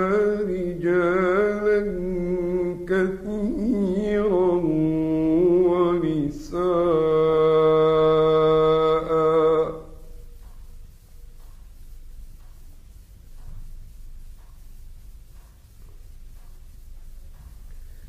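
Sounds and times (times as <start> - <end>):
man chanting melodically: 0.0 - 10.3.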